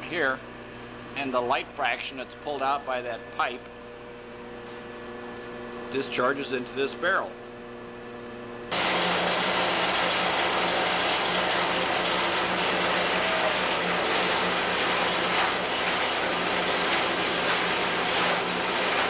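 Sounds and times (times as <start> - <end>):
shredder machine running loudly: 8.7 - 19.0.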